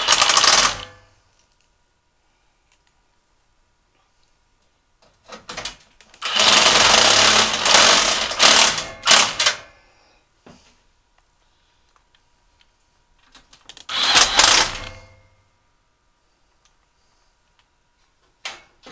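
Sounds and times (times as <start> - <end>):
cordless power driver: 0.0 - 0.8, 6.2 - 9.3, 13.9 - 15.1.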